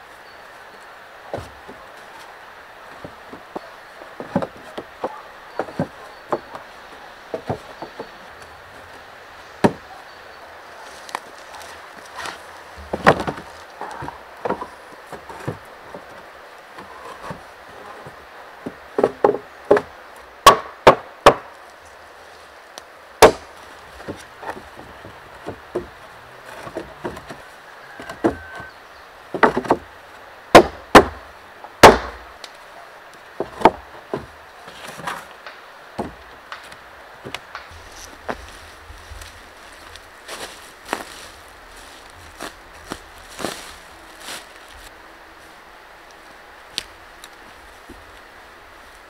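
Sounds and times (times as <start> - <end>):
wooden planks knocking: 1.3 - 1.8, 2.9 - 9.0, 9.6 - 9.9, 11.6 - 16.2, 16.8 - 21.5, 23.2 - 28.7, 29.3 - 29.9, 30.5 - 31.2, 33.4 - 44.4.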